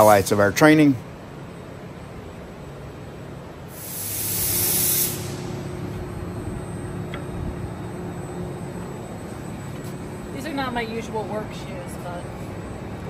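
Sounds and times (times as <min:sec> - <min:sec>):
machinery humming: 0:00.0 - 0:13.0
loud hiss: 0:03.7 - 0:05.7.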